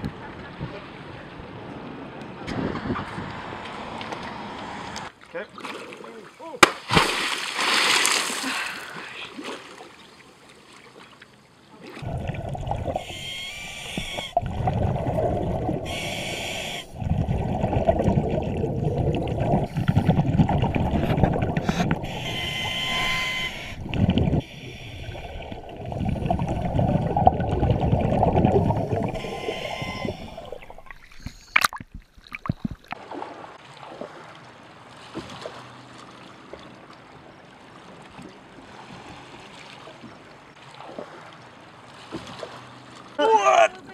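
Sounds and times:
water sloshing: 0:05.2 - 0:43.8
big splash into water: 0:06.6 - 0:08.6
muffled underwater rumbling: 0:12.0 - 0:33.0.

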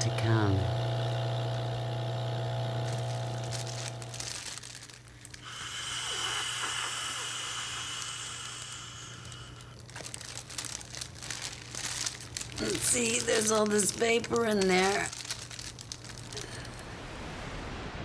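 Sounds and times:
low steady hum: 0:00.0 - 0:17.4
plastic bag crinkling: 0:02.7 - 0:06.3, 0:08.5 - 0:16.9
hiss of air: 0:05.4 - 0:09.6.

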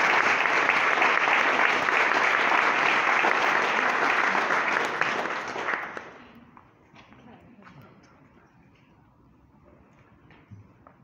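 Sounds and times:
audience applauding: 0:00.0 - 0:06.4.

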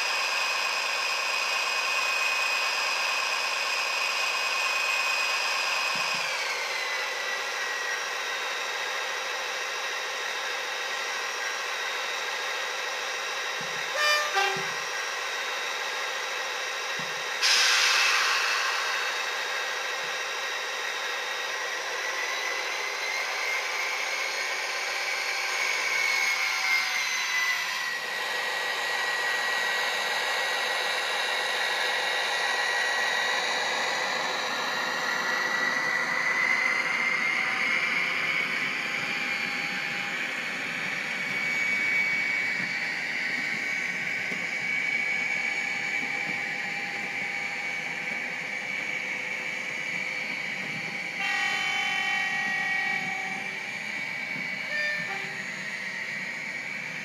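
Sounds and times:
diesel engine droning through small speaker: 0:13.0 - 0:15.2, 0:29.9 - 0:57.0
loud hiss burst: 0:17.4 - 0:20.4.

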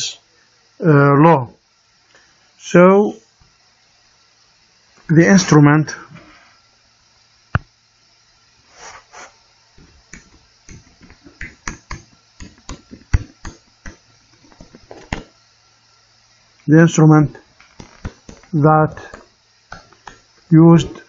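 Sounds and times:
faint steady hum: 0:00.0 - 0:21.0
stylus tapping on tablet screen: 0:09.8 - 0:15.3, 0:17.8 - 0:18.5, 0:19.1 - 0:20.3.

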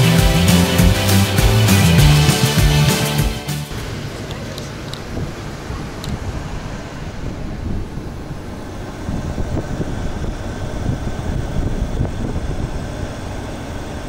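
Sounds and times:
vehicle rumble: 0:03.6 - 0:14.0
wind noise: 0:03.7 - 0:14.0.

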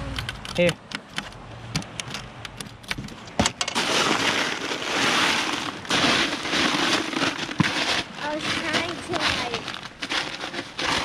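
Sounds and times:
crushed ice crunching and rattling: 0:03.6 - 0:11.0.

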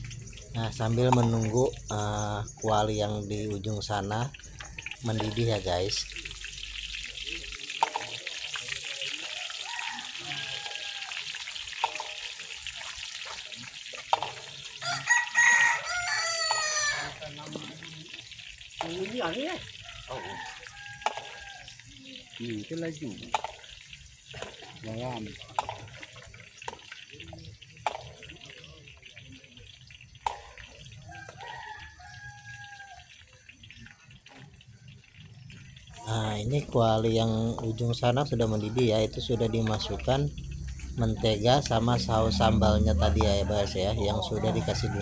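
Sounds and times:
frying hiss from a wok: 0:00.0 - 0:43.5
rooster crowing: 0:09.2 - 0:11.6, 0:14.8 - 0:17.4, 0:19.6 - 0:21.9, 0:31.0 - 0:33.2, 0:41.9 - 0:45.0
metal spatula clacking on wok: 0:11.7 - 0:12.4.

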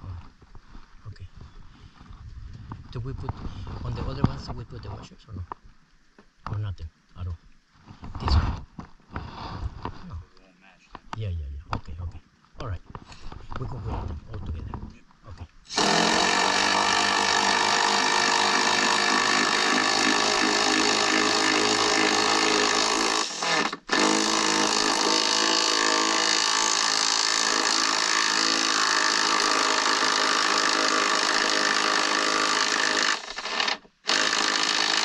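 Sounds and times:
power drill running under load: 0:15.7 - 0:35.0.

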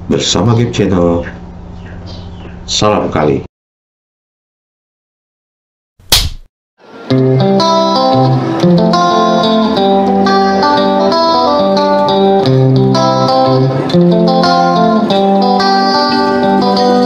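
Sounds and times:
instrumental music with plucked guitar: 0:06.9 - 0:17.0.

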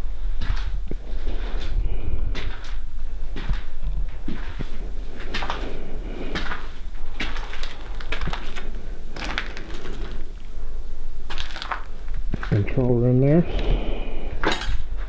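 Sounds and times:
footsteps crunching on gritty floor: 0:00.3 - 0:10.3, 0:11.3 - 0:13.0.

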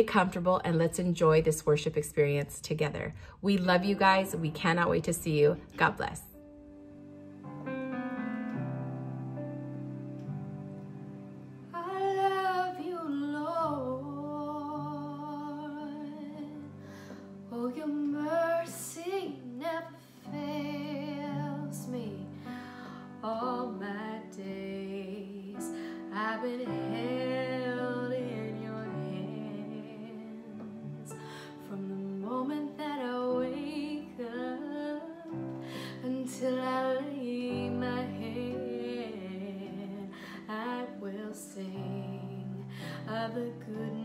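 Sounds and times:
electronic keyboard chords: 0:04.2 - 0:14.2
woman singing: 0:11.7 - 0:44.0.

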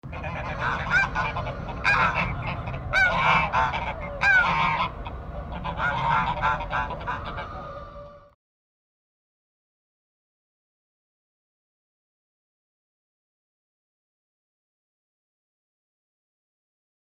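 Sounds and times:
steady low rumble: 0:00.0 - 0:08.3
honking bird calls: 0:00.0 - 0:08.4.

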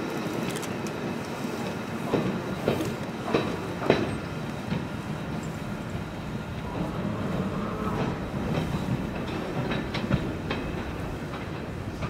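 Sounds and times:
wheels clicking over rail joints: 0:00.1 - 0:12.0
locomotive low rumble: 0:04.1 - 0:12.0.

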